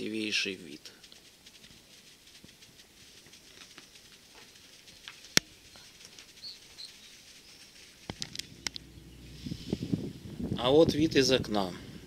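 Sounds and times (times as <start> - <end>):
sharp clicks: 1.0 - 6.5, 7.7 - 8.9
faint bird chirps: 4.8 - 9.9.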